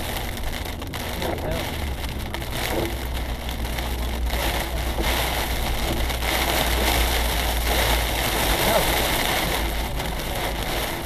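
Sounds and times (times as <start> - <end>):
car driving rumble: 0.0 - 11.0
heavy rain on car: 0.0 - 11.0.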